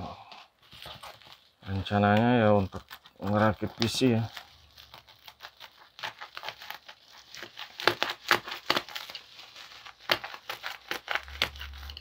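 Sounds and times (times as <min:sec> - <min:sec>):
plastic packaging crinkling: 0:00.5 - 0:12.0.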